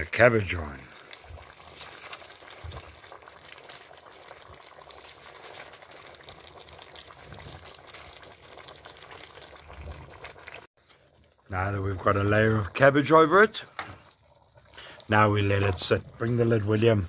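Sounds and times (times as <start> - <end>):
stew bubbling and sizzling: 0.0 - 17.0
wood fire crackling: 0.0 - 17.0.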